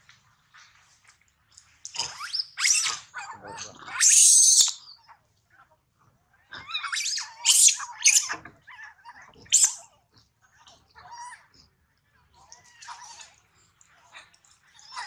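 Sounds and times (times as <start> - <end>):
baby monkeys crying and screaming: 2.0 - 4.9, 6.6 - 8.4, 9.2 - 9.9.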